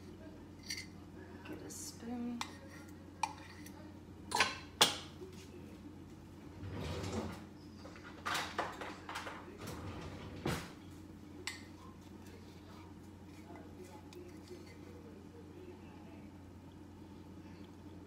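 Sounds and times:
kitchenware clattering: 0:02.3 - 0:05.1, 0:07.0 - 0:09.6.

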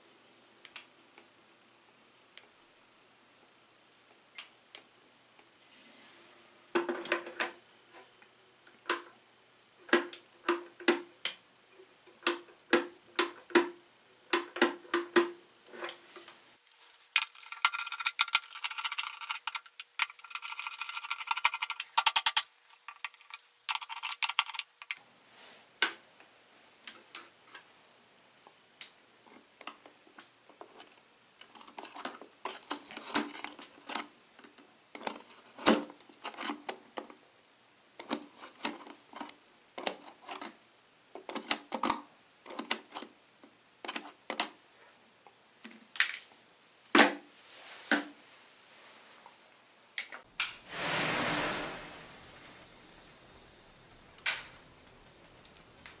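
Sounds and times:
rattle of clicks: 0:16.8 - 0:25.0, 0:52.4 - 0:56.0.

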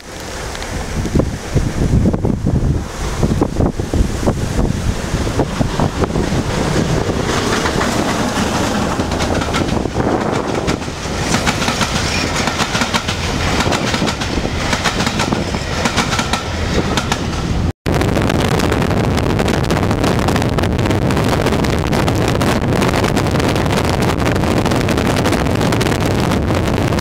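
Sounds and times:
rush of running and wind noise: 0:00.0 - 0:27.0
train wheels clattering over rails: 0:05.0 - 0:17.7.

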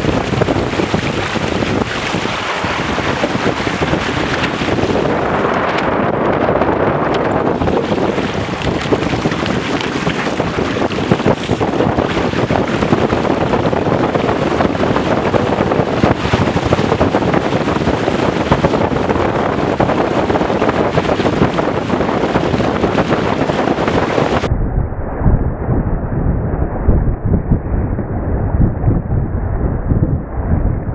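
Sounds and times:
water rushing along hulls: 0:00.0 - 0:24.5
wind buffeting microphone: 0:00.0 - 0:30.9.

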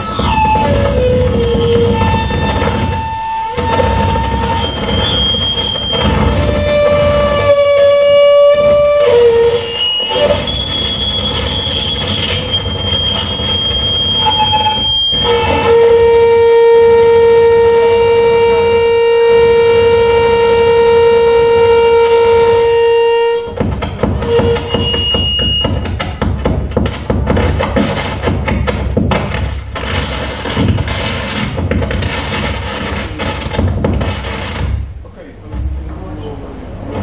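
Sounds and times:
long droning tone: 0:00.0 - 0:25.9
harsh distorted noise music: 0:23.7 - 0:35.8.

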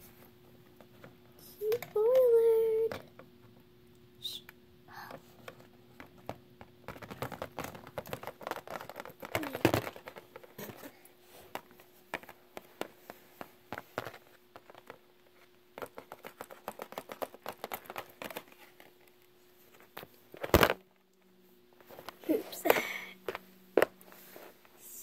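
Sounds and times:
plastic figures clicking and tapping: 0:01.0 - 0:03.3, 0:05.0 - 0:10.9, 0:11.5 - 0:15.0, 0:15.7 - 0:19.2.

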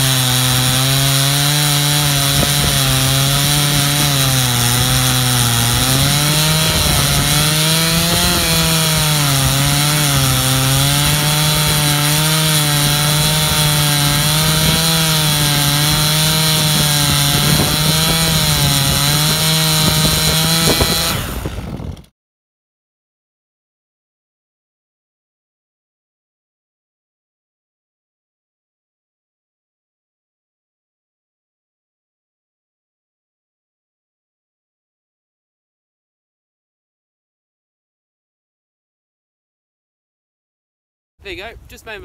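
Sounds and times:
chainsaw cutting log: 0:00.0 - 0:22.1.

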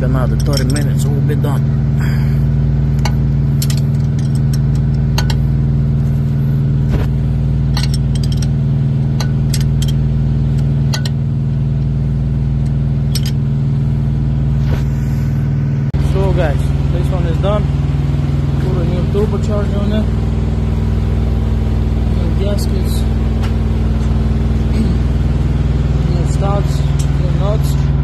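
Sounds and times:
engine idling: 0:00.0 - 0:28.0
wrench clicking on metal: 0:09.2 - 0:10.0, 0:13.1 - 0:13.4.

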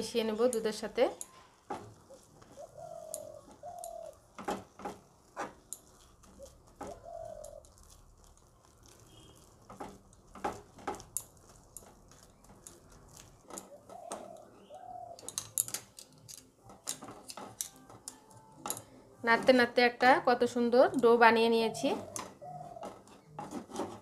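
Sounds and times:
metal spoon scraping a frying pan: 0:00.0 - 0:14.6, 0:15.2 - 0:20.0, 0:20.9 - 0:24.0
bird cooing: 0:02.1 - 0:04.2, 0:06.3 - 0:07.8, 0:13.7 - 0:15.4, 0:21.6 - 0:23.2.

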